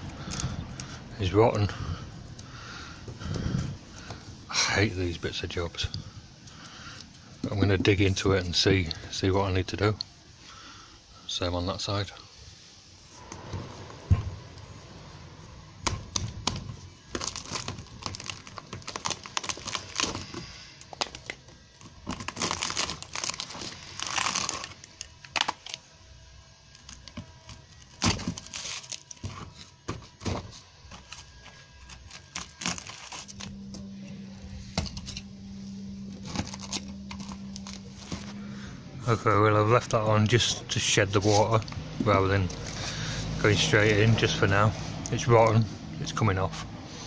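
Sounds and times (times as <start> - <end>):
low steady hum: 0.0 - 47.0
rotten wood cracking and scraping: 17.1 - 25.8, 31.1 - 33.8, 36.2 - 38.3.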